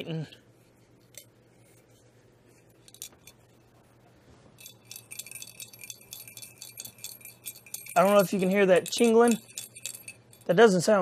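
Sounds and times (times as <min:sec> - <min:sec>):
metal hilt jingling: 0:04.6 - 0:11.0
rapid high ringing jingles: 0:04.6 - 0:11.0.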